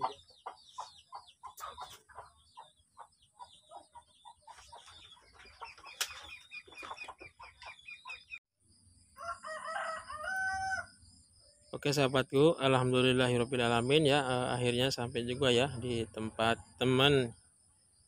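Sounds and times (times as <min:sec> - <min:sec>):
chickens clucking: 0:00.0 - 0:08.4.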